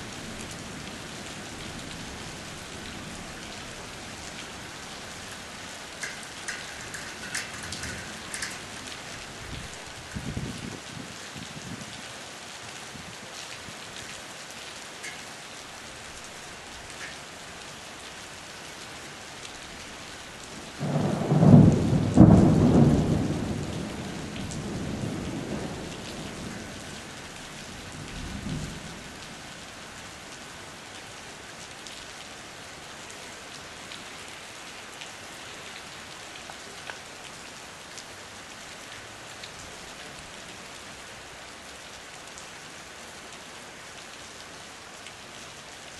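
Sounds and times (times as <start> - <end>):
heavy rain on pavement: 0.0 - 45.9
loud thunderclap rumbling: 6.0 - 8.7, 20.8 - 26.6.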